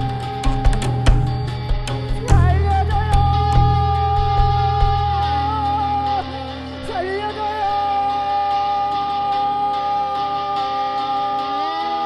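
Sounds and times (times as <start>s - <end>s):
low droning tones: 0.0s - 8.5s.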